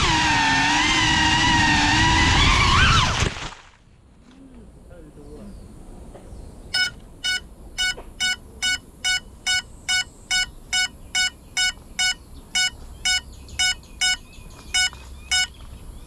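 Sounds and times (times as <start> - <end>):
drone beeper short beeps: 6.8 - 15.6.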